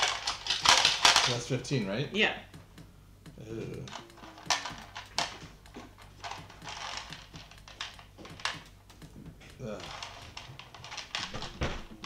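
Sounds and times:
jelly beans clattering into plastic tray: 0.0 - 1.5, 3.9 - 8.7, 9.6 - 12.0.

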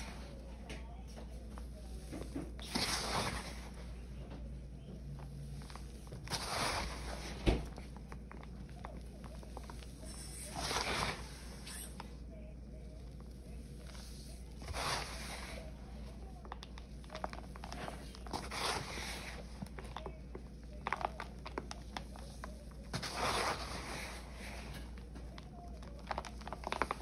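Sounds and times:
powder lumps crushed by hand: 12.9 - 27.0.

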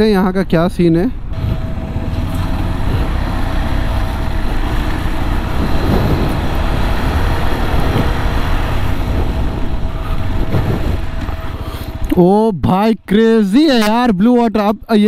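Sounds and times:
wind and road noise: 0.0 - 15.0
motorcycle engine running: 1.3 - 12.2.

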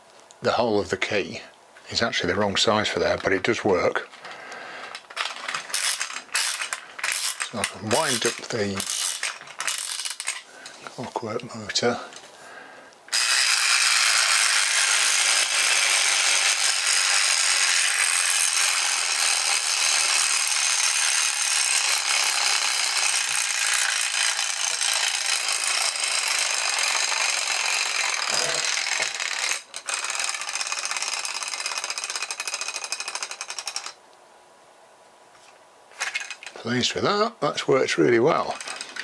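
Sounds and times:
clockwork motor rattling: 4.9 - 10.5, 13.1 - 34.0, 36.0 - 36.6, 38.3 - 39.0.

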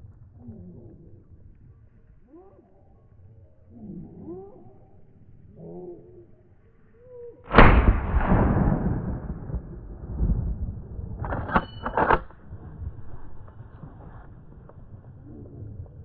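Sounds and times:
loud gunshot with rolling echo: 7.5 - 12.2.

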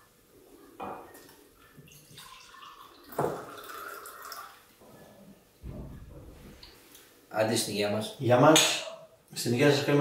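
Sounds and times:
wine pouring into cup: 1.8 - 4.6.

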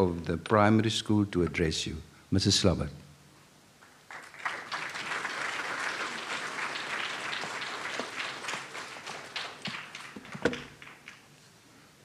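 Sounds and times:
audience applauding: 3.8 - 11.3.

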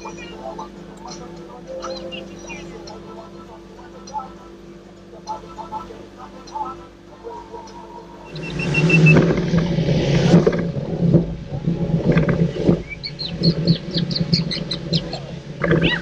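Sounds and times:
parrot chirping: 0.0 - 9.1, 12.8 - 16.0
boat motor running: 0.0 - 16.0
water rushing past: 8.1 - 15.8
wind rushing: 8.2 - 15.8.

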